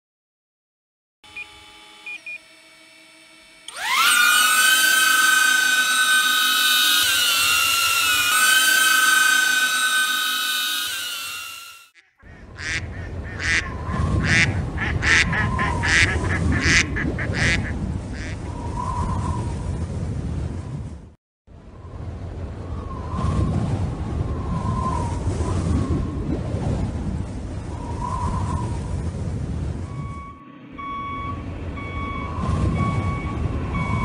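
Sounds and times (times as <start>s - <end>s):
drone propellers whining: 1.3s - 12.8s, 13.4s - 19.6s, 29.6s - 34.0s
low rumble: 13.7s - 34.0s.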